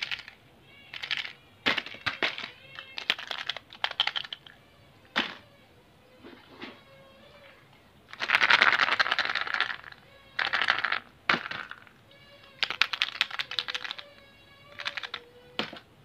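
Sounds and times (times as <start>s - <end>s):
plastic clicking: 0.0s - 4.6s, 8.1s - 15.9s
crinkling foil: 8.1s - 11.8s, 14.8s - 15.2s.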